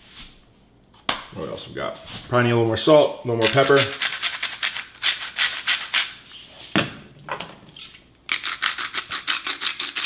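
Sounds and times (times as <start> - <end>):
salt and pepper grinders grinding: 3.4 - 6.2, 8.3 - 10.0.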